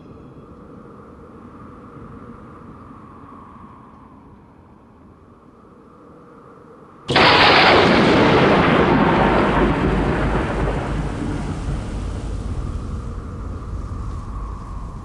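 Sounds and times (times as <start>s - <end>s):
loud crash with rushing rumble: 7.1s - 14.1s.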